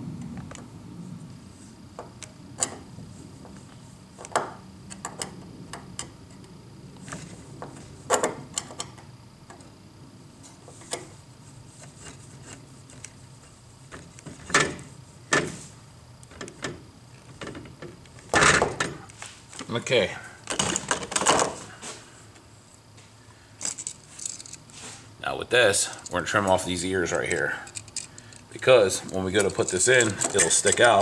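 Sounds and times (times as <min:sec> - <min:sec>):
screwdriver turning a screw: 0:29.0 - 0:31.0.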